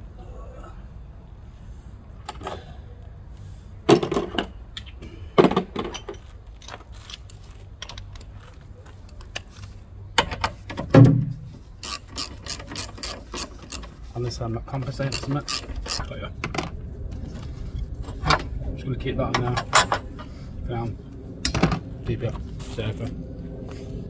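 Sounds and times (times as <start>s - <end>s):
metal tools and bolts clinking: 5.7s - 8.5s, 11.8s - 14.0s, 14.8s - 16.2s.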